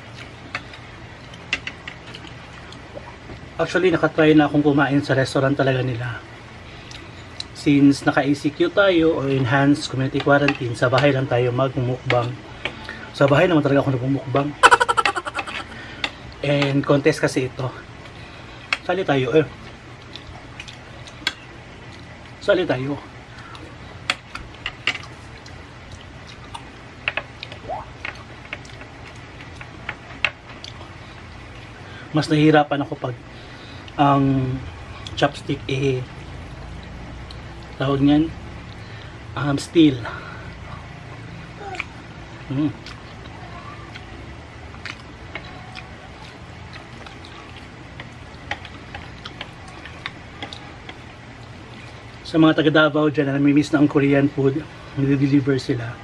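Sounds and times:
steady low hum: 0.0 - 56.0
person chewing: 44.7 - 51.9.

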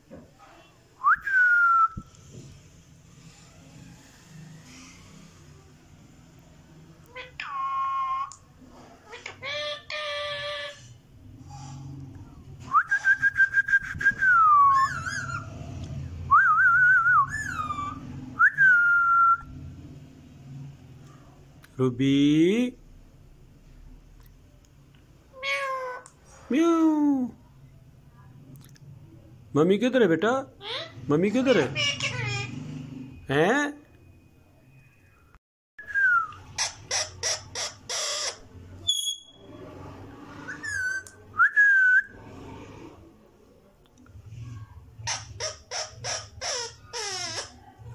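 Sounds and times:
parakeet whistling: 12.8 - 15.6, 16.6 - 19.4, 35.8 - 39.5.

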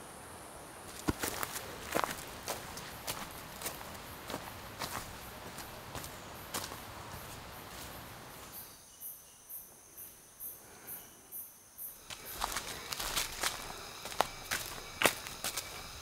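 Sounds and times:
footsteps on leafy dirt trail: 0.8 - 8.6, 12.0 - 16.0
insect calling in high pulses: 8.4 - 16.0.

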